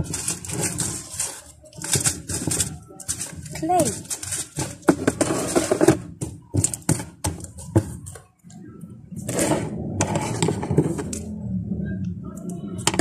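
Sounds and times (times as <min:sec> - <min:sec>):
slime rustling: 0:00.0 - 0:04.9.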